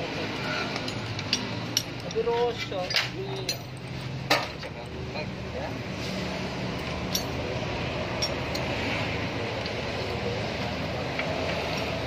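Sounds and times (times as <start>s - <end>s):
metallic clinks of hand tools: 0.4s - 4.0s, 6.8s - 7.4s.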